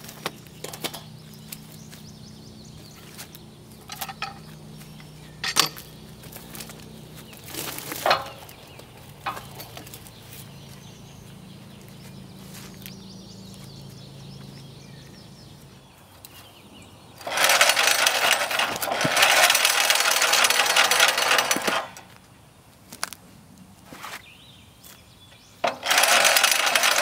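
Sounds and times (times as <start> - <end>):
loud rapid rattling: 3.8 - 4.5, 7.5 - 8.6, 17.2 - 22.1, 25.6 - 27.0.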